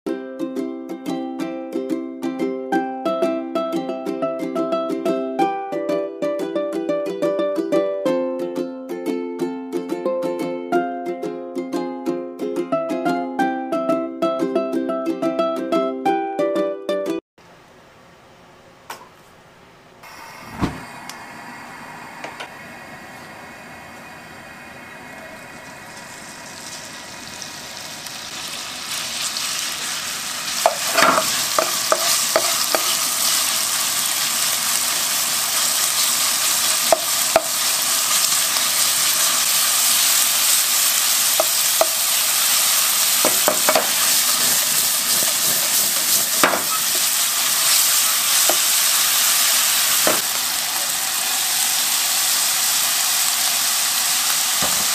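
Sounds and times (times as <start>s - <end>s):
gas burner igniter click: 20.6s - 21.2s
meat frying in oil: 25.2s - 54.9s
wooden spoon knocking on pan: 30.6s - 33.0s, 36.9s - 37.5s, 43.2s - 44.0s, 46.4s - 46.8s.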